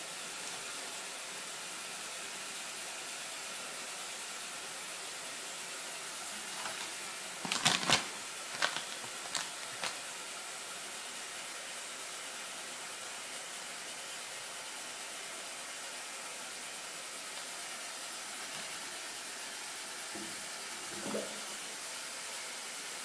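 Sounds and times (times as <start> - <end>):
tap water running into sink: 6.3 - 10.0, 20.1 - 21.9
plastic wrapper crinkling: 6.4 - 10.0.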